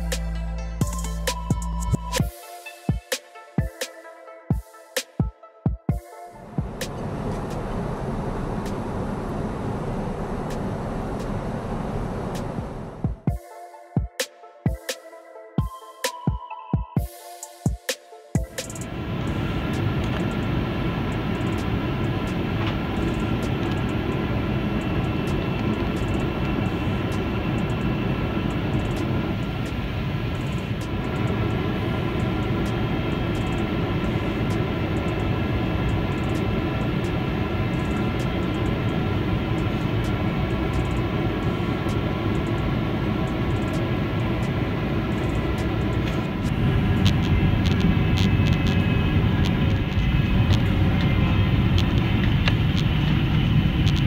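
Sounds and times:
jet engines whining: 5.9s - 16.4s, 17.0s - 54.0s
low rumble: 6.4s - 13.2s, 18.8s - 54.0s
air rushing in cabin: 6.4s - 13.3s, 18.4s - 54.0s.

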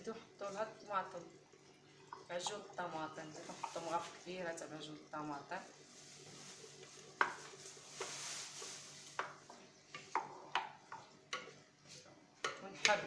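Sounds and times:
soft sizzle: 0.0s - 13.0s
wooden spoon knocking clay pot: 9.2s - 11.5s.

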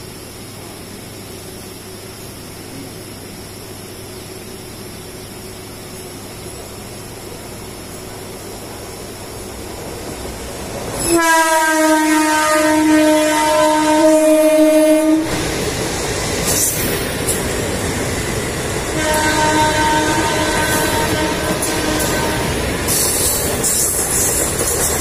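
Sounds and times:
moving train running noise: 0.0s - 25.0s
train horn blaring: 11.0s - 15.4s, 18.8s - 23.0s.

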